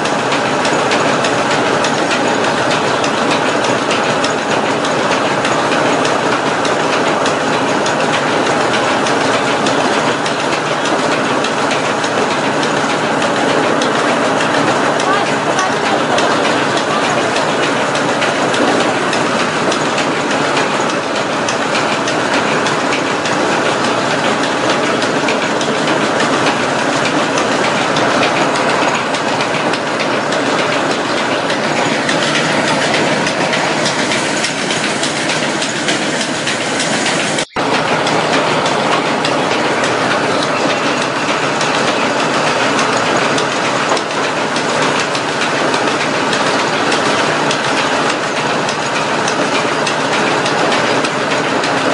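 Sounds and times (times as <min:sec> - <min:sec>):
electric motor driving flour mill: 0:00.0 - 0:51.9.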